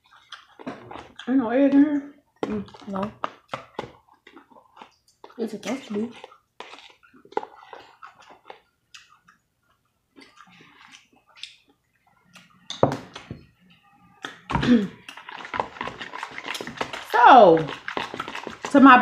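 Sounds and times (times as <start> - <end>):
wet chewing: 0.0 - 13.3, 14.2 - 19.0
lip smacks: 6.2 - 9.4, 10.2 - 13.3, 14.2 - 18.7.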